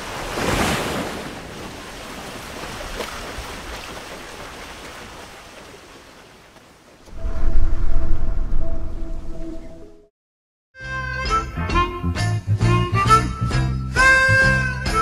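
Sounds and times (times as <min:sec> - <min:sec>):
music: 0:10.8 - 0:15.0.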